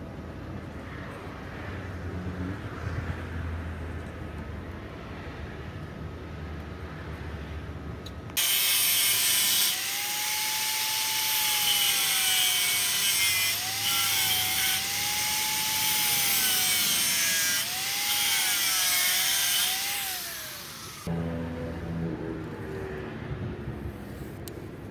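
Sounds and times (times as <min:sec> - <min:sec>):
angle grinder cutting steel: 0:08.4 - 0:21.3.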